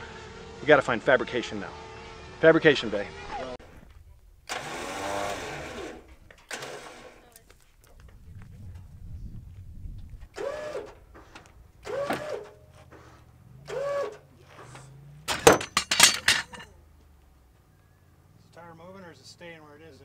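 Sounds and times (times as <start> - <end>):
electric winch motor whine: 4.4 - 7.2, 10.3 - 14.2
loud metal clanks: 15.2 - 16.8.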